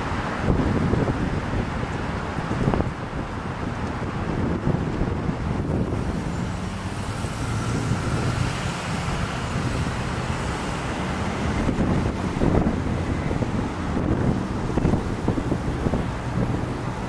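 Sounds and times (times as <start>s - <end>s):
road traffic rumble: 0.0s - 17.0s
low engine drone: 5.5s - 17.0s.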